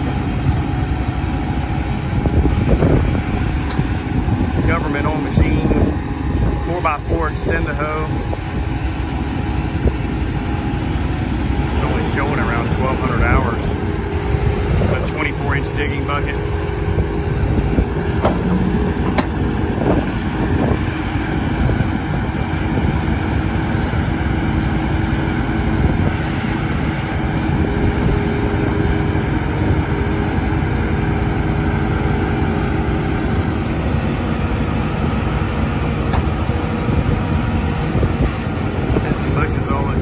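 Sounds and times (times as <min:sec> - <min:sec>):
diesel engine running: 0:00.0 - 0:40.0
sharp knocks: 0:18.2 - 0:19.4.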